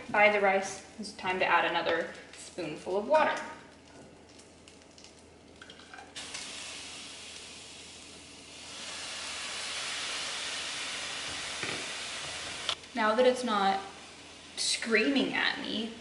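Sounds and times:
water sizzling in hot pan: 4.3s - 15.9s.

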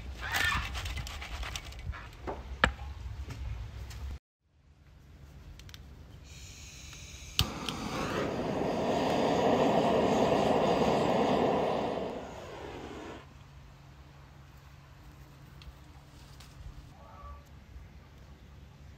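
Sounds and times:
gas hissing: 6.3s - 13.3s
torch flame rushing: 7.3s - 13.3s.

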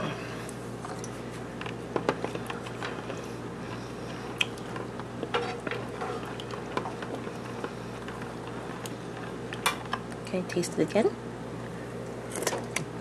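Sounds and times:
spoon stirring sauce: 2.0s - 10.0s.

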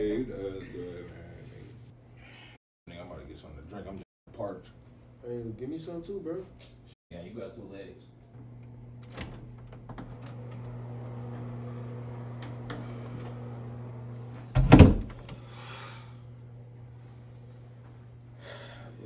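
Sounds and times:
door unlatching and opening: 9.0s - 10.8s, 14.5s - 15.4s.

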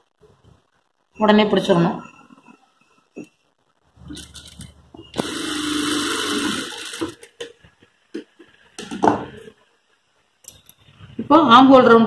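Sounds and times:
sewing machine running: 5.2s - 7.3s.

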